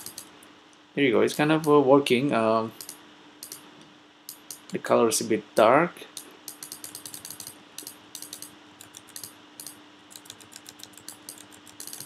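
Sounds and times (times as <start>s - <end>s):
faint steady hum: 0.0s - 12.0s
computer keyboard typing clicks: 2.8s - 3.6s, 6.2s - 12.0s.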